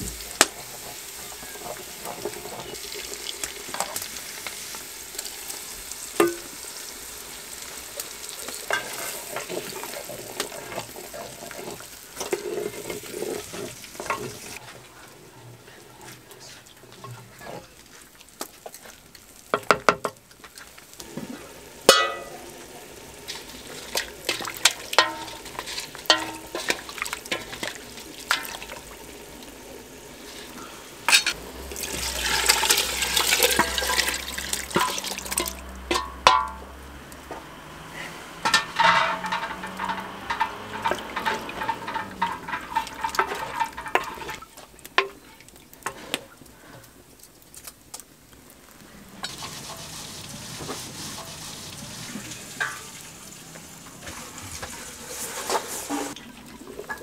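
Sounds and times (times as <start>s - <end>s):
wooden spoon stirring in metal pot: 0.0s - 47.0s, 48.9s - 57.0s
liquid pouring and splashing: 23.0s - 29.5s, 31.6s - 36.4s, 38.4s - 46.0s, 49.1s - 57.0s.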